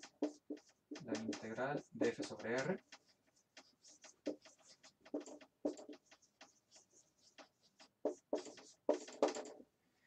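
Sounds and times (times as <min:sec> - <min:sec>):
marker squeaking on whiteboard: 0:00.0 - 0:09.6.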